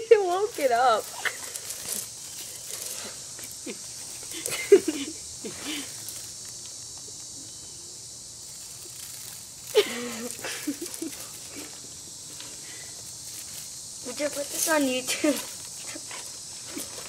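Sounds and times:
faint outdoor hiss: 0.0 - 17.0.

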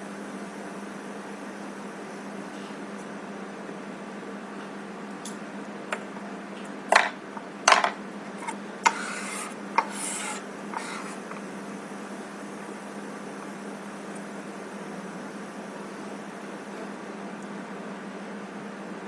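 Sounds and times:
steady low hum: 0.0 - 19.0
metal knife scraping wax: 8.4 - 11.4.

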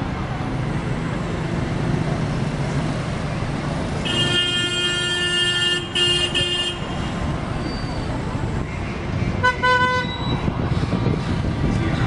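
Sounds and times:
passing cars and tyres: 0.0 - 12.0
car horn: 4.0 - 7.2, 9.4 - 10.2.

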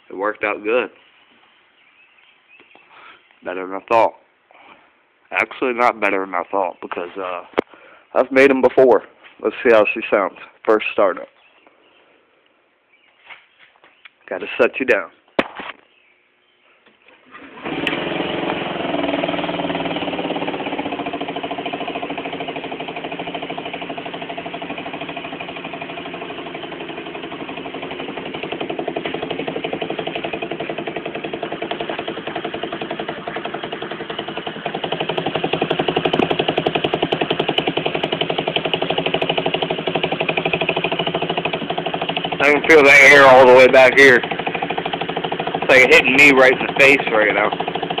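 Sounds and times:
scooter engine starting and idling: 17.1 - 48.0.

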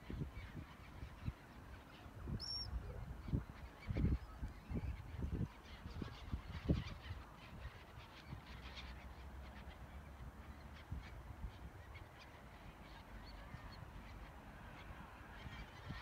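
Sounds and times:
wind rumble on microphone: 0.0 - 8.6, 13.3 - 16.0
waterbirds calling: 0.2 - 16.0.

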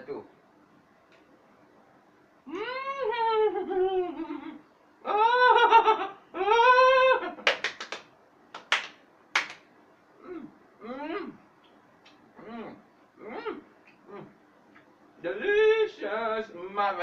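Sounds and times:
person's high-pitched cries: 2.5 - 7.4
hand claps: 7.4 - 9.7.

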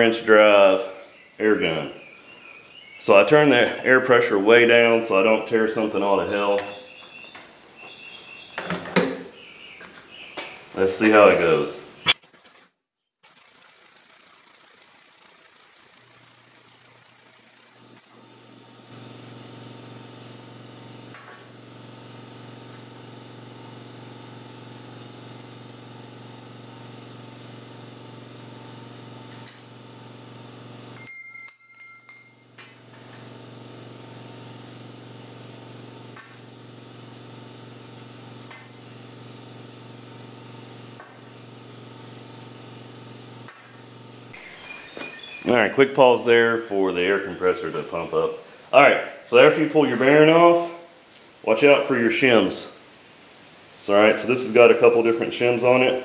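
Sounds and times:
air compressor running: 13.2 - 31.0, 32.4 - 48.7
metallic clink: 29.3 - 29.8, 31.0 - 32.5.

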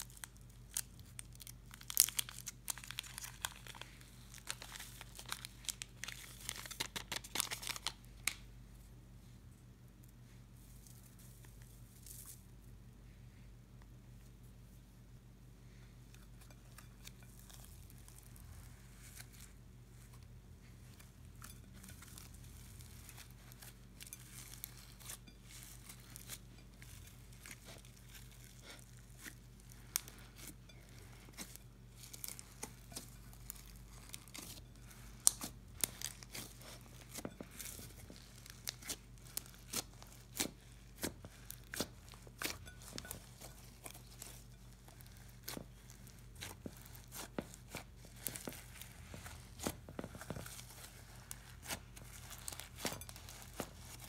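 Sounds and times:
slime crackling and popping: 0.0 - 8.4, 21.4 - 54.0.

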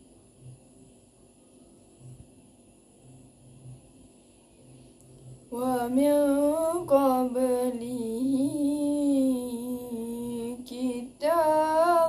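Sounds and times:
girl reciting melodically: 5.5 - 12.0.

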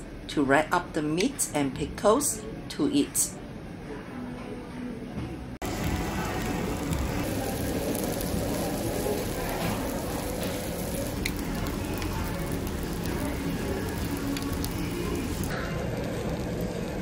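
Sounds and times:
meat sizzling on a hotplate: 5.6 - 17.0.

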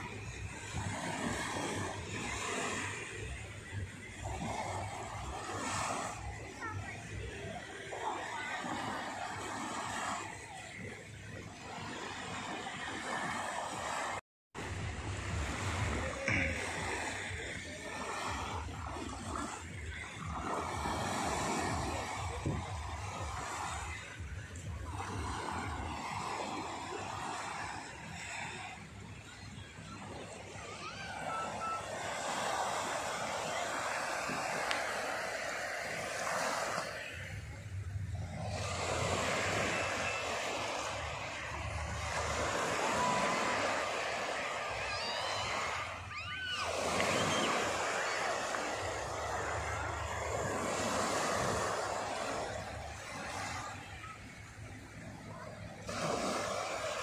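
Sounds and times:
low wind rumble on microphone: 0.0 - 30.6
small waves lapping on beach: 0.0 - 57.0.

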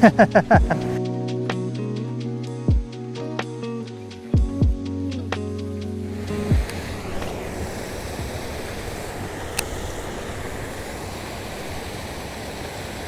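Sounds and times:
background music: 0.0 - 7.8
wind on microphone: 6.1 - 13.0.

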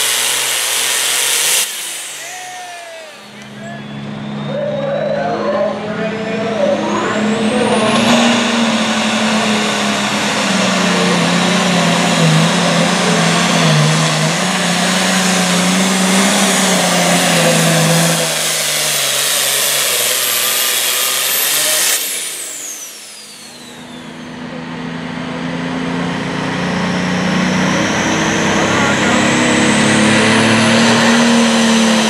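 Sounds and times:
diesel tractor engine at full throttle: 0.0 - 32.0
turbo whistle: 2.1 - 5.8, 19.5 - 24.4.

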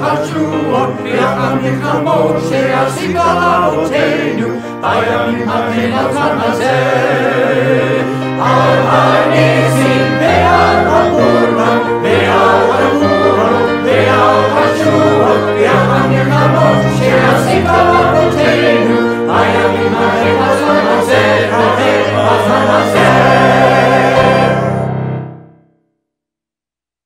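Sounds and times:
choir singing: 0.0 - 25.4
piano: 0.0 - 26.0
clarinet: 5.9 - 25.1.

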